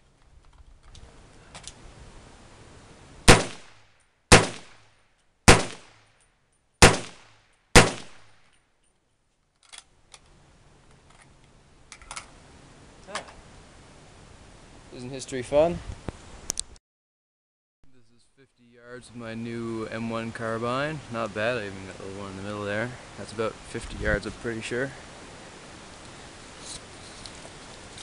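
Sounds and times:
rifle gunshots with echo: 3.3 - 4.9, 5.5 - 6.1, 6.8 - 8.4.

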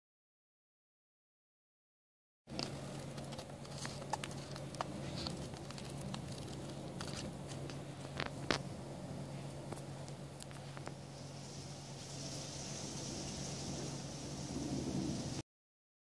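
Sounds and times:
book pages flicking: 2.5 - 8.6
steady low hum: 2.5 - 15.4.

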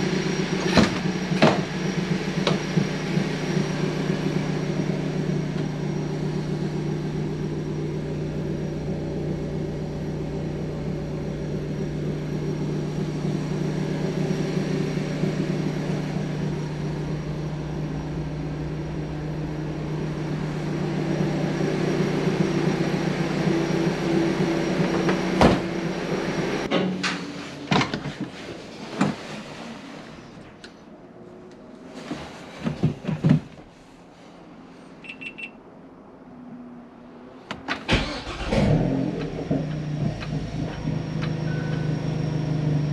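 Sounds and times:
steady machine hum: 0.0 - 26.7.

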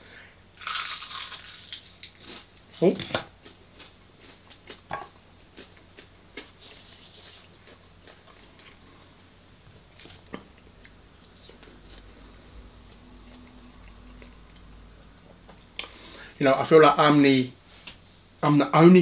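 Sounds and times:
soft hiss: 6.4 - 19.0
chewing and mouth noises: 10.0 - 14.7.

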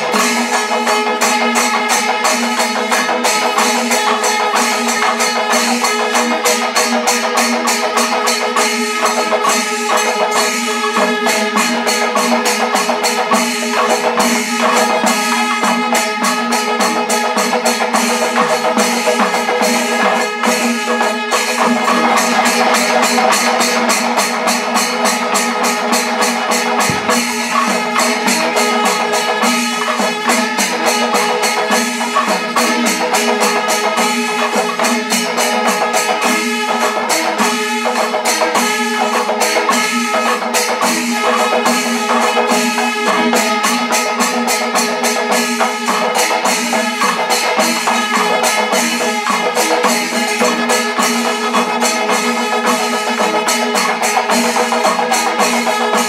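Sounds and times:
ringing cymbals: 0.0 - 56.0
drum strokes: 21.6 - 33.3.

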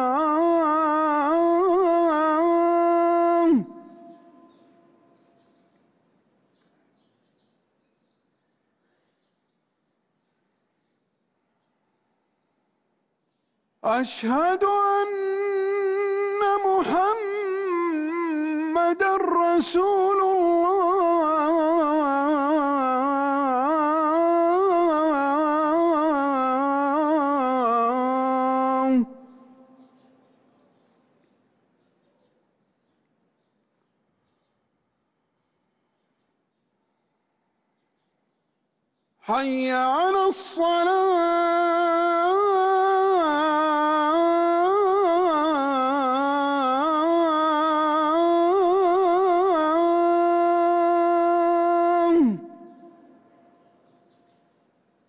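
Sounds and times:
man chanting call to prayer: 0.0 - 5.2, 13.8 - 30.3, 39.2 - 54.4.

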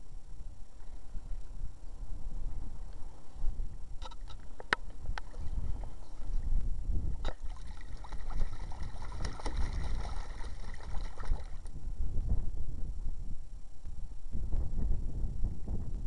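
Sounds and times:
wind on microphone: 0.0 - 16.0
water splashing and sloshing: 7.2 - 11.7.

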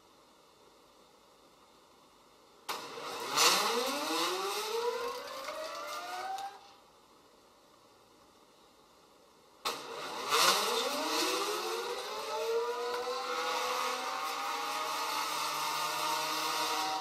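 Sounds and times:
stepper motors whining: 2.9 - 6.7, 9.9 - 17.0.

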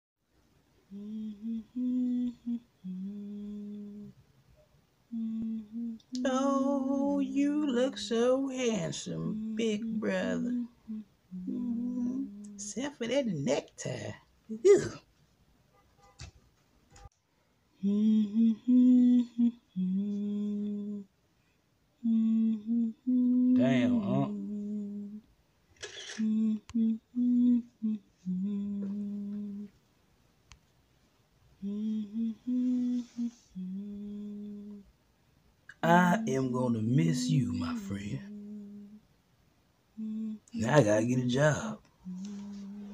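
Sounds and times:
man humming: 9.1 - 12.6, 22.0 - 25.2, 31.6 - 34.8, 35.7 - 39.0, 40.0 - 42.9.

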